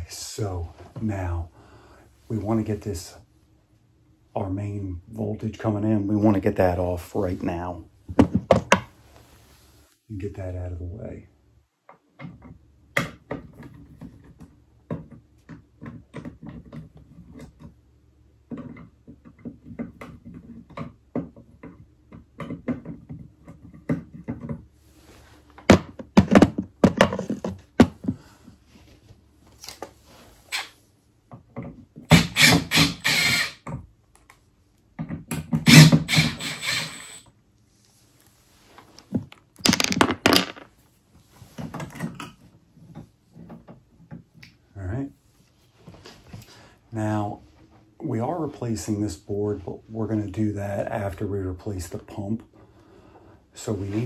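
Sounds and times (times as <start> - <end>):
small clicks and knocks: 11.8 - 17.8, 18.4 - 24.7.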